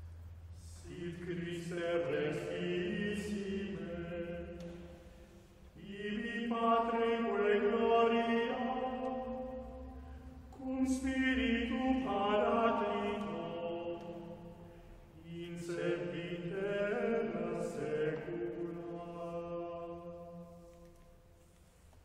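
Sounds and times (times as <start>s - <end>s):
vocal ensemble singing chords: 0.5s - 21.0s.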